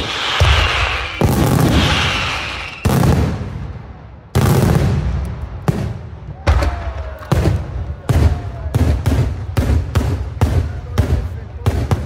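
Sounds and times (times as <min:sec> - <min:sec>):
fireworks booming: 0:00.0 - 0:12.0.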